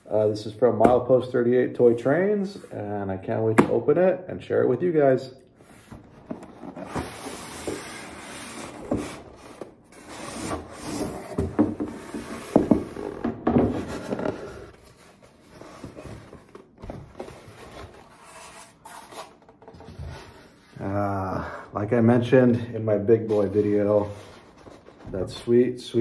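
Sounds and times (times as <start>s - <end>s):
boxes rubbing and scraping: 5.6s - 21.0s, 23.2s - 26.0s.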